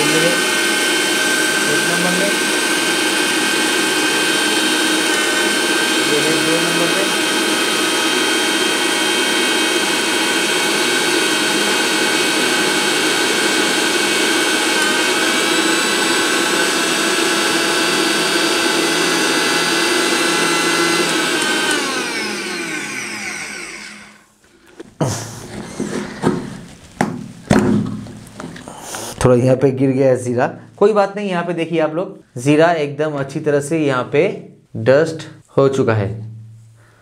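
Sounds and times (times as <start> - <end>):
mixer grinder motor whine: 0.0 - 24.3.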